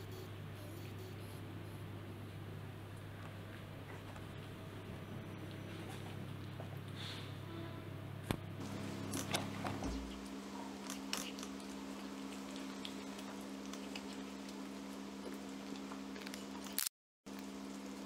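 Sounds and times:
steady low hum: 0:00.0 - 0:16.7
cat chewing and licking: 0:10.1 - 0:16.8.

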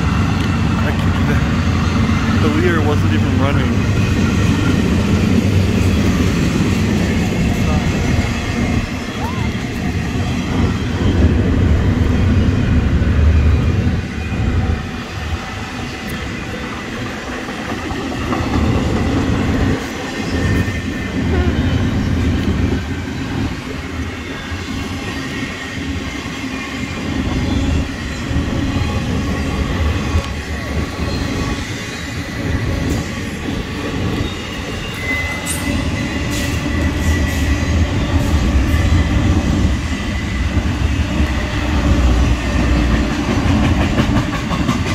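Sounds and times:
train wheels rumbling on rails: 0:00.0 - 0:44.9
high wheel squeal: 0:18.4 - 0:42.7.

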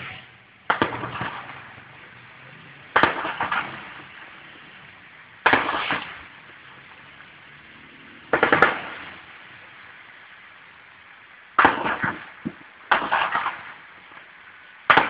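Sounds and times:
automatic gunfire bursts: 0:08.4 - 0:08.9.

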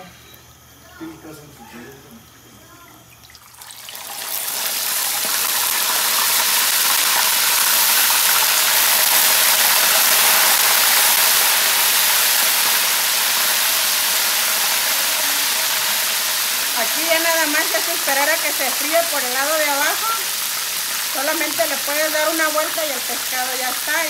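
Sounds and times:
fish sizzling in hot lard: 0:00.5 - 0:24.0.

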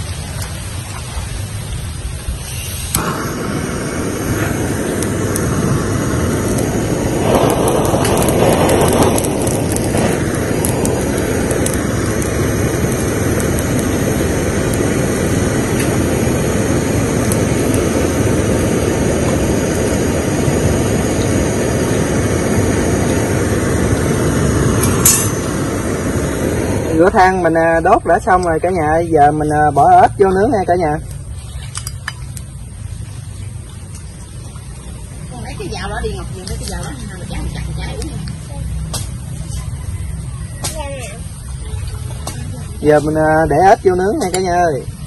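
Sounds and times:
fire-starting blower rushing: 0:02.2 - 0:31.3.

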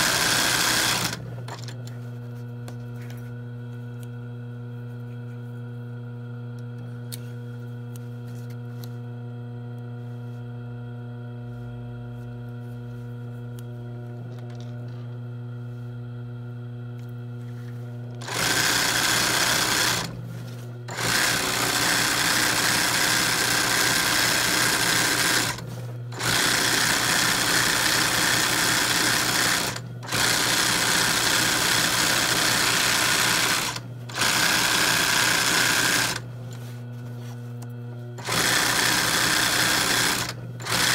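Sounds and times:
sewing machine needle stitching: 0:00.0 - 0:01.7, 0:26.2 - 0:36.2, 0:38.2 - 0:40.9
sewing machine motor humming: 0:00.0 - 0:01.8, 0:18.1 - 0:20.3, 0:20.9 - 0:36.3, 0:38.2 - 0:40.9.

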